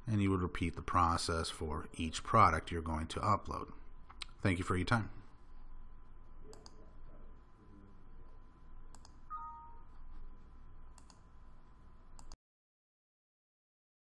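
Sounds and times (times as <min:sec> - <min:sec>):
faint room hum: 0:00.0 - 0:12.4
computer mouse clicks: 0:06.5 - 0:06.8, 0:08.9 - 0:09.2, 0:10.9 - 0:11.3, 0:12.2 - 0:12.4.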